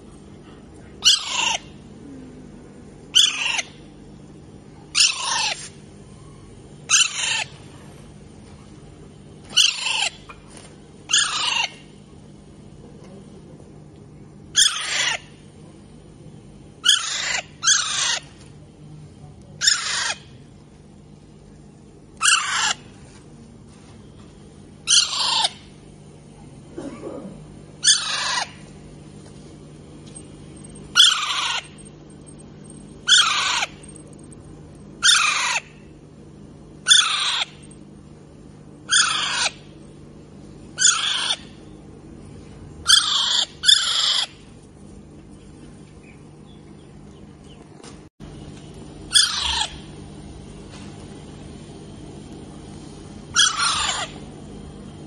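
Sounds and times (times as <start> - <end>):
parakeets screeching: 1.0 - 1.8, 3.1 - 3.8, 4.9 - 5.7, 6.9 - 7.6, 9.5 - 10.2, 11.1 - 11.8, 14.6 - 15.3, 16.8 - 18.3, 19.6 - 20.3, 22.2 - 22.9, 24.8 - 25.7, 27.8 - 28.6, 30.6 - 34.4, 35.0 - 35.9, 36.8 - 37.7, 38.9 - 39.7, 40.8 - 41.6, 42.8 - 44.4, 49.1 - 49.9, 53.3 - 54.2.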